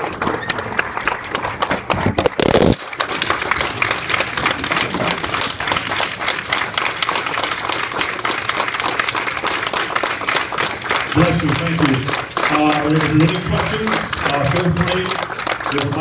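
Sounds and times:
audience applauding: 0.0 - 16.0
short loud burst of noise: 2.0 - 2.8.

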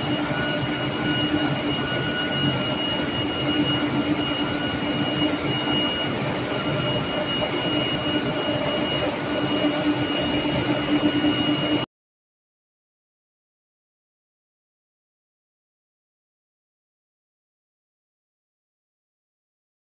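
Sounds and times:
high-pitched whine: 0.0 - 11.9
industrial drone: 0.0 - 11.9.

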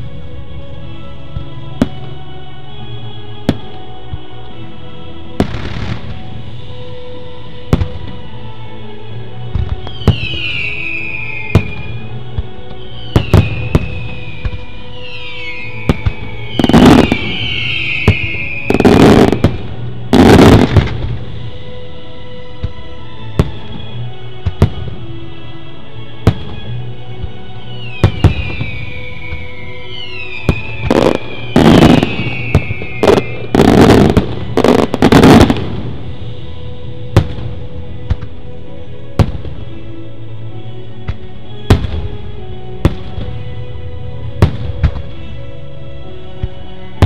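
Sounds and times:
music playing: 0.0 - 47.0
fireworks bangs: 9.5 - 21.3, 27.8 - 36.2
falling firework whistles: 9.6 - 21.1, 27.7 - 36.0.

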